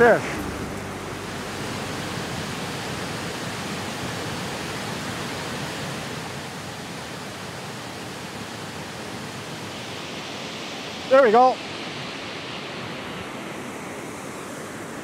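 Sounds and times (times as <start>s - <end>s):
waterfall rushing: 0.0s - 14.6s.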